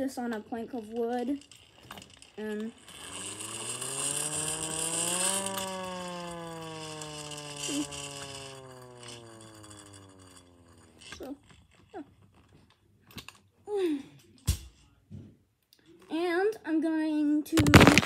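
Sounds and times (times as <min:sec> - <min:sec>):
hand-crank siren wailing: 0:00.9 - 0:12.0.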